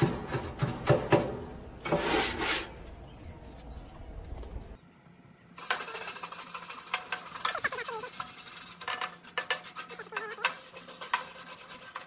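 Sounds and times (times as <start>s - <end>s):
scrub brush scrubbing metal: 0.0s - 2.8s, 5.6s - 12.0s.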